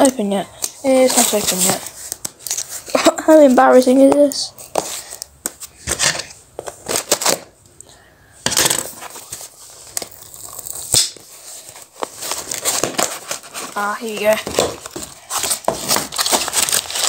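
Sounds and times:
packaging tearing and crumpling: 0:08.5 - 0:17.0.

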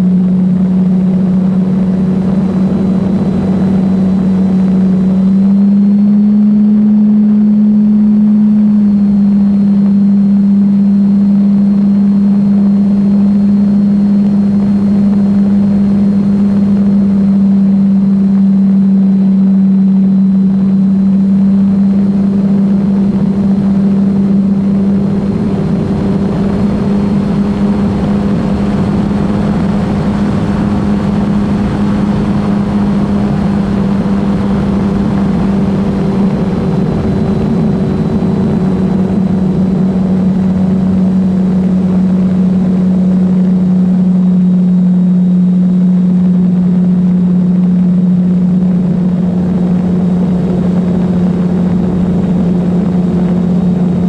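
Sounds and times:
model plane motor drone: 0:00.0 - 0:54.0.

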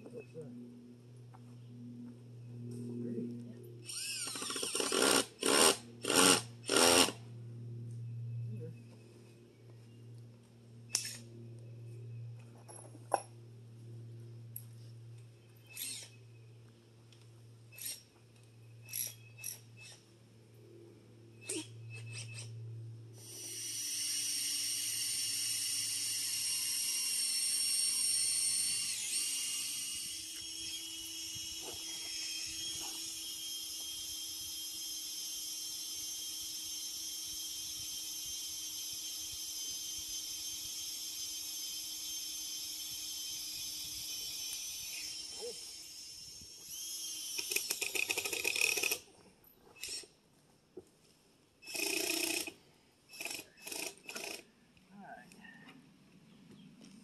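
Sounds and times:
cordless drill driving a screw: 0:03.8 - 0:07.2, 0:10.9 - 0:11.2, 0:15.7 - 0:16.2, 0:17.8 - 0:18.1, 0:18.8 - 0:20.0, 0:21.4 - 0:22.5, 0:23.2 - 0:49.1, 0:49.8 - 0:50.1, 0:51.6 - 0:54.5.

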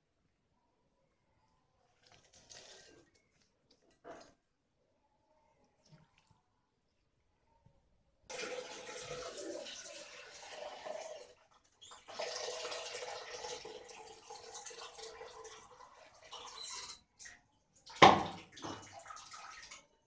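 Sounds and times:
water splashing in a steel bowl: 0:01.9 - 0:04.4, 0:08.3 - 0:20.0.

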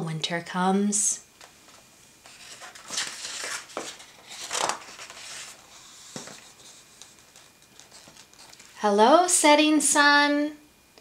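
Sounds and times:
book page turning: 0:02.2 - 0:08.8.

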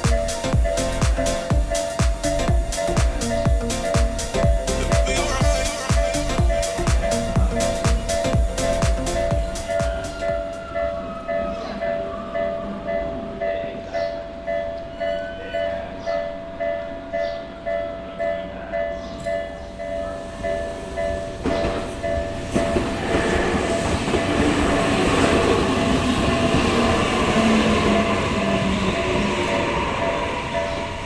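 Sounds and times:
level crossing bell ringing: 0:00.0 - 0:10.0
electric train rumbling: 0:00.0 - 0:31.0.

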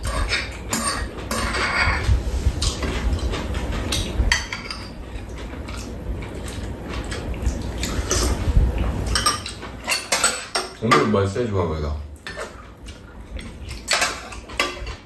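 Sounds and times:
spoons clinking against bowls: 0:00.0 - 0:02.0, 0:09.1 - 0:11.1.

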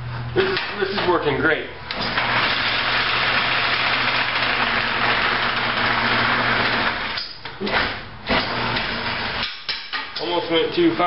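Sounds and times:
lathe motor hum: 0:02.1 - 0:07.2.

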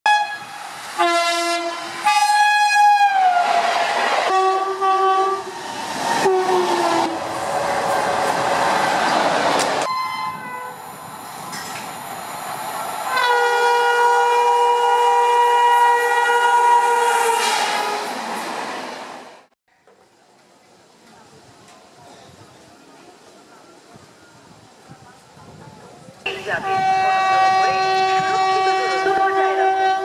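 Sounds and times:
train air horn blasts: 0:00.1 - 0:03.6, 0:04.2 - 0:05.5, 0:06.2 - 0:07.2, 0:09.9 - 0:10.8, 0:13.1 - 0:18.2, 0:26.3 - 0:30.0
train passing on rails: 0:00.1 - 0:19.5, 0:20.2 - 0:30.0.

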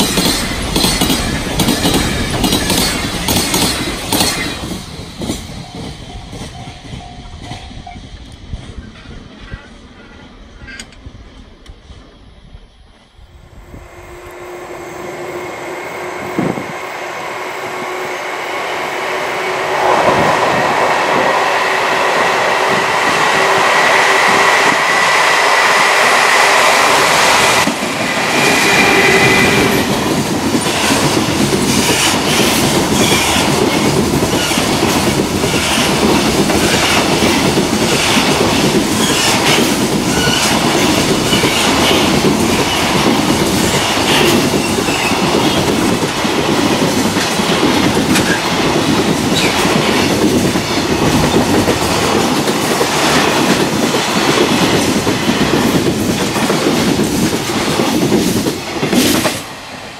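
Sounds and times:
train wheels clattering over rail joints: 0:00.0 - 0:07.7, 0:27.6 - 0:59.5.

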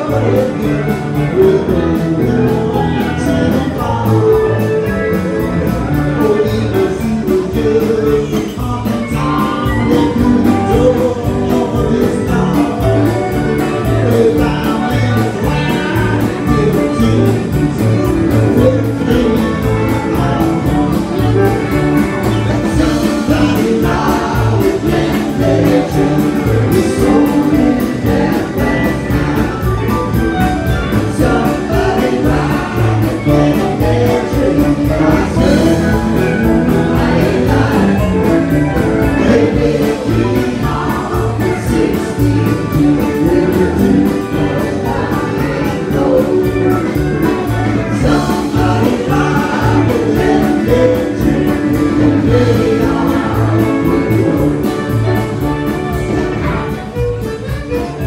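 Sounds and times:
drums with cymbal beat: 0:00.0 - 0:58.0
electric guitars: 0:00.0 - 0:58.0
person singing: 0:00.0 - 0:58.0
fiddle: 0:55.5 - 0:58.0.

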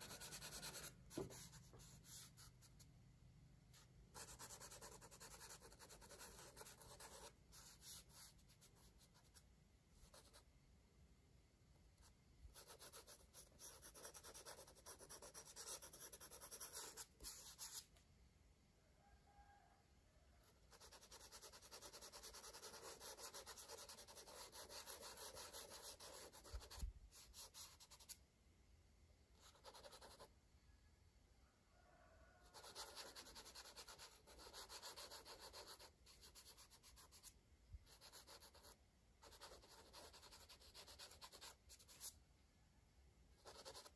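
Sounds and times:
crayon scratching on paper: 0:00.0 - 0:02.4, 0:04.2 - 0:09.3, 0:12.6 - 0:17.8, 0:20.7 - 0:28.2, 0:29.4 - 0:30.3, 0:32.5 - 0:37.3, 0:37.9 - 0:42.1, 0:43.4 - 0:43.9.

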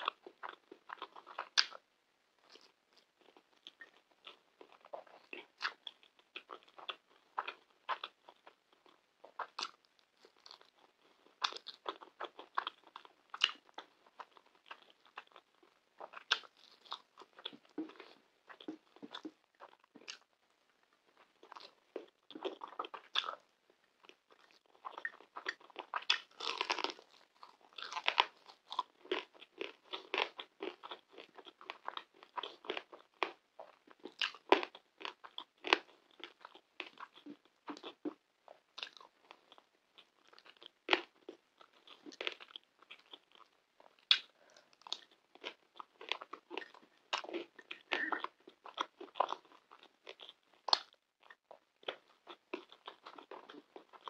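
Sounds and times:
wet chewing: 0:02.4 - 0:20.3, 0:21.1 - 0:54.0
mouth clicks: 0:46.6 - 0:48.4.

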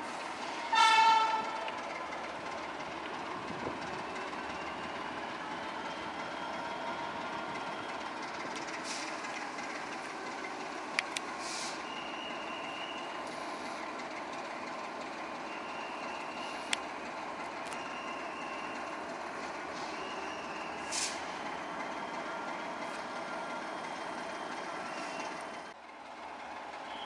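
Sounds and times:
locomotive engine running: 0:00.0 - 0:27.0
air hisses: 0:11.4 - 0:11.9, 0:20.8 - 0:21.3.

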